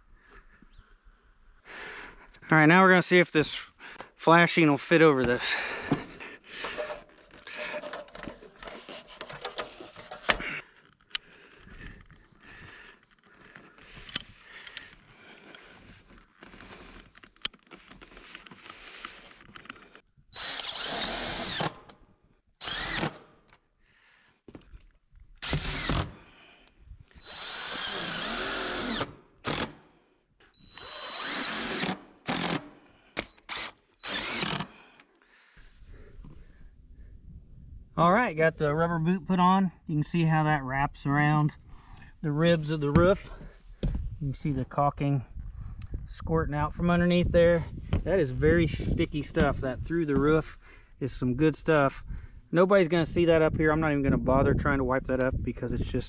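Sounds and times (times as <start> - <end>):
cordless drill driving screws: 18.2 - 22.0, 22.6 - 23.3, 25.4 - 26.3, 27.1 - 29.9, 30.5 - 35.1.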